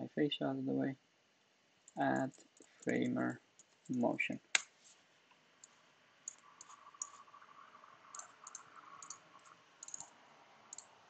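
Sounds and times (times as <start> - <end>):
computer keyboard typing: 5.6 - 7.2, 8.1 - 10.1.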